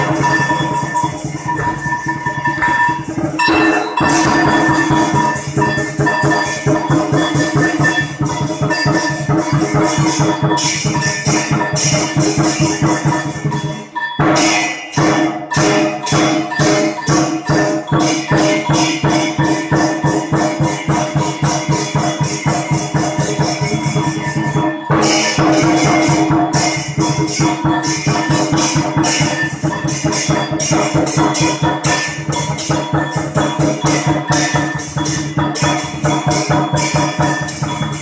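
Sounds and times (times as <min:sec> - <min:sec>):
held tones: 0:00.0 - 0:05.4
fast percussive beat: 0:00.0 - 0:38.0.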